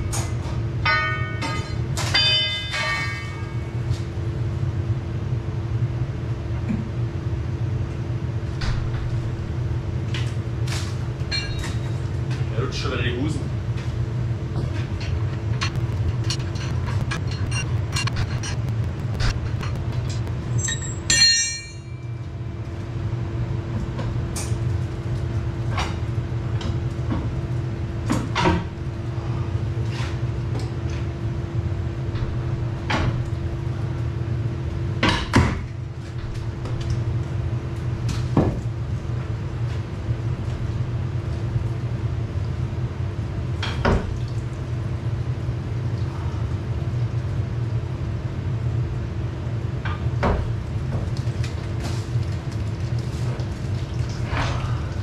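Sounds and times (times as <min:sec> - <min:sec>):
metal clanks and knocks: 0:00.0 - 0:03.7, 0:11.3 - 0:11.8, 0:14.6 - 0:22.1
low machine hum: 0:00.0 - 0:55.0.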